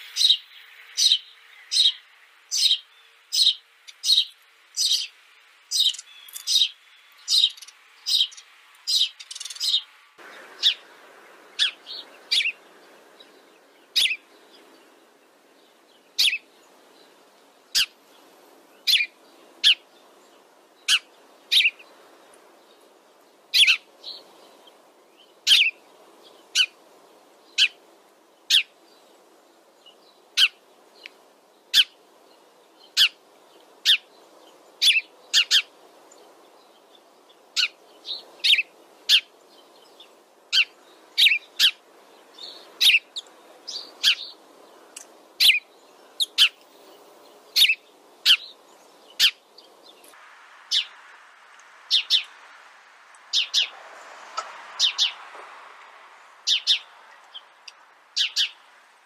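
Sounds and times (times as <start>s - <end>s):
sparrows chirping: 0.0s - 58.9s
low background hiss: 0.0s - 59.0s.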